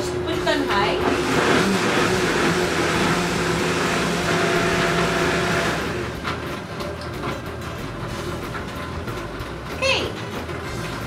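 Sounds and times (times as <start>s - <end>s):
blender whirring: 0.0s - 6.4s.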